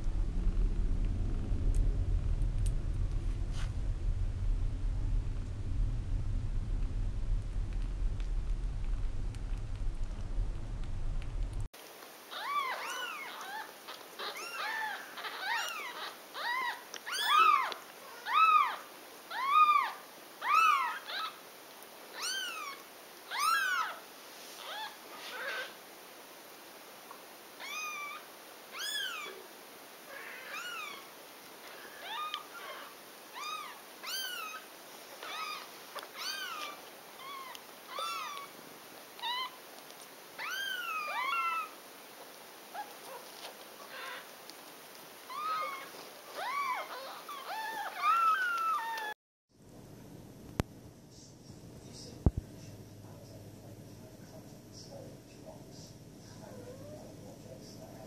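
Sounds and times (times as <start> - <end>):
kitten mewing: 35.2 - 38.5.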